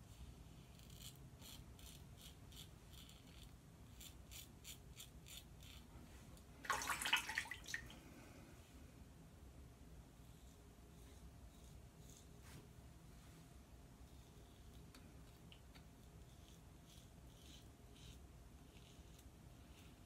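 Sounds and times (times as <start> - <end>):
razor scraping stubble: 0.5 - 6.0.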